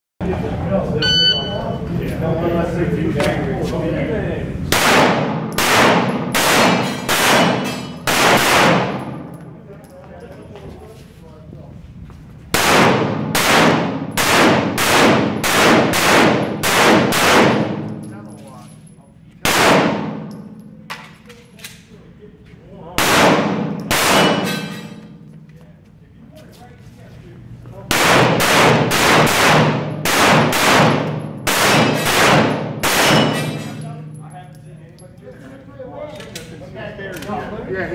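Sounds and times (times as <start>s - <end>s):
pistol shots echoing indoors: 4.7s - 9.4s, 12.5s - 18.2s, 19.4s - 21.2s, 23.0s - 25.2s, 27.9s - 34.1s.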